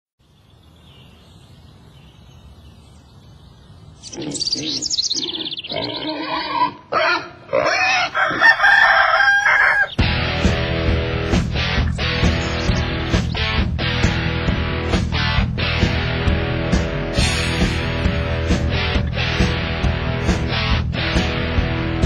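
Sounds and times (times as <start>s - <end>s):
farm animal calls: 4.0s - 10.1s
electric guitar music: 10.0s - 22.0s.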